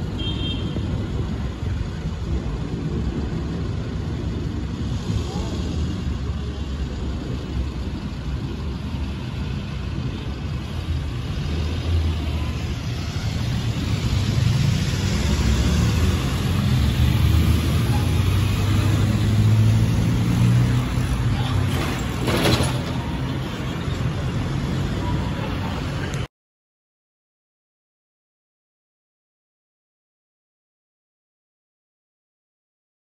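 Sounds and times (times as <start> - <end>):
low engine rumble: 0.0 - 26.3.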